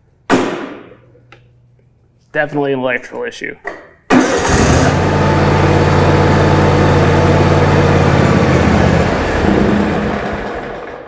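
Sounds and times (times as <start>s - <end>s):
mower engine running: 4.1s - 11.0s.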